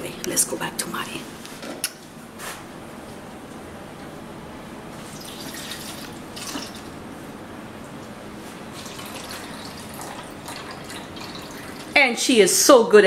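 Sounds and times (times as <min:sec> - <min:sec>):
liquid pouring and splashing: 0:05.1 - 0:06.9, 0:08.7 - 0:12.0.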